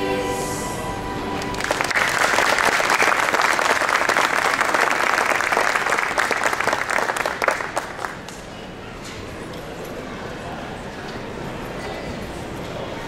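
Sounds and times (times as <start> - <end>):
audience applauding: 1.4 - 8.5.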